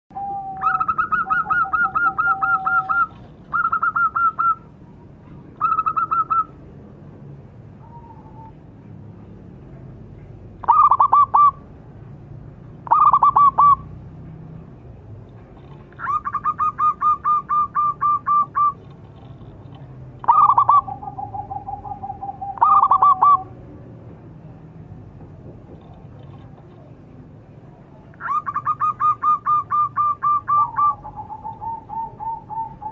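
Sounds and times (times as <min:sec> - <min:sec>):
dove cooing: 0:00.2 - 0:04.7, 0:05.6 - 0:06.6, 0:10.6 - 0:11.6, 0:12.8 - 0:13.9, 0:15.7 - 0:18.9, 0:20.2 - 0:23.6, 0:28.2 - 0:32.9.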